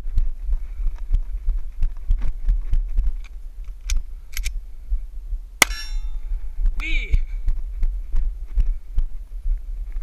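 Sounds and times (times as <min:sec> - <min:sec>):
footsteps on dirt trail: 0:00.0 - 0:04.1, 0:05.6 - 0:10.0
sharp crack: 0:05.6 - 0:06.1
short metallic ring: 0:05.6 - 0:06.3.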